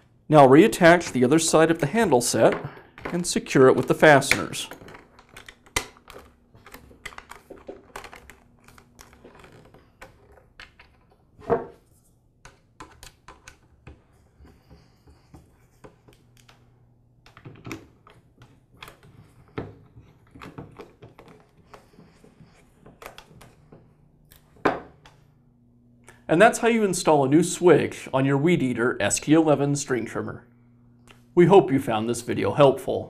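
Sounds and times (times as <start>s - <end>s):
plastic parts handled: 2.3s - 25.2s.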